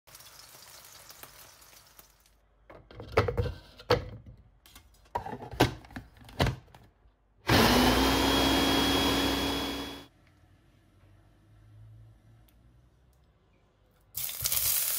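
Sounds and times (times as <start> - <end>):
blender motor running: 7.5 - 10.1.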